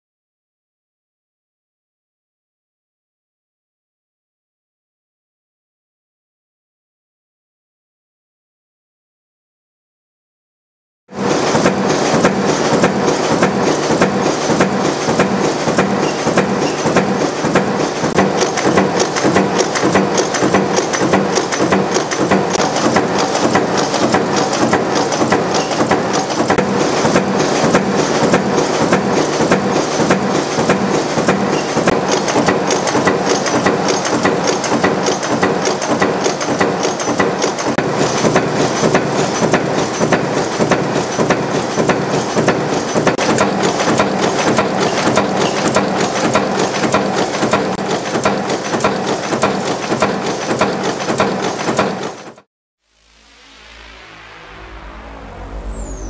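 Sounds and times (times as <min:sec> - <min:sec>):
machine forging clatter: 0:11.2 - 0:52.4.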